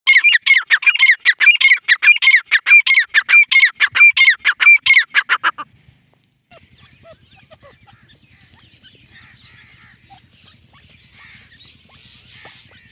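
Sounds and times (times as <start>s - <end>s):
francolin calling: 6.5s - 12.9s.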